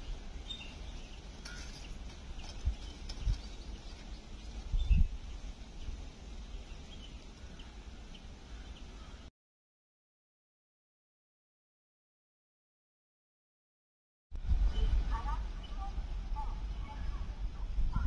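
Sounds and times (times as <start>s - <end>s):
small birds chirping: 0.0s - 9.3s, 14.7s - 17.4s
steady low rumble: 0.0s - 9.3s, 14.4s - 18.0s.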